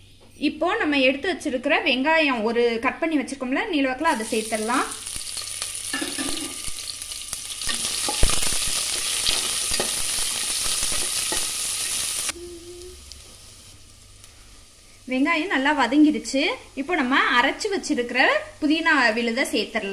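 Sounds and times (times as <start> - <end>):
onions sizzling in oil: 4.1 - 19.9.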